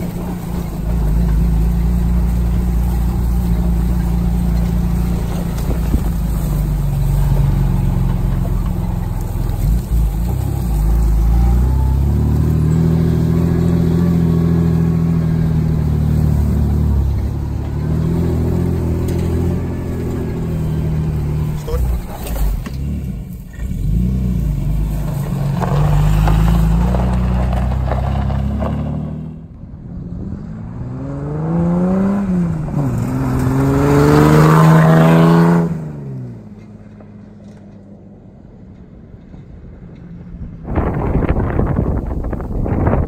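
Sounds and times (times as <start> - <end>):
wind buffeting microphone: 0.0 - 11.5, 40.2 - 43.0
vehicle engine running: 0.0 - 30.0.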